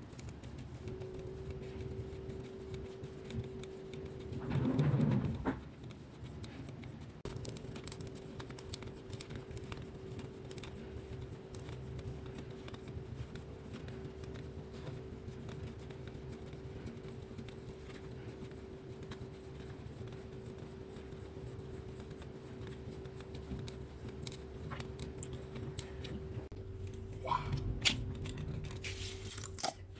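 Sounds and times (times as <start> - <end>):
faint steady hum: 0.0 - 29.9
pen scratching on paper: 0.5 - 7.2, 7.8 - 24.2.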